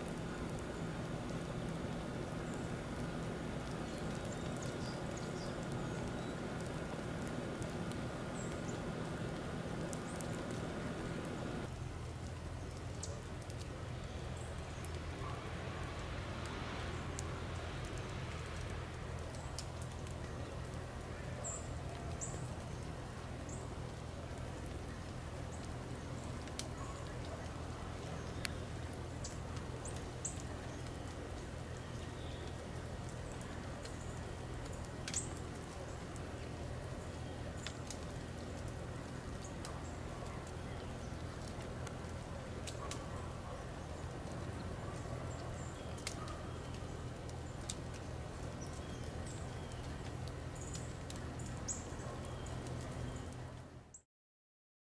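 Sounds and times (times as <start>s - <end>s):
low hum: 0.0s - 53.3s
faint ticks: 29.2s - 36.5s.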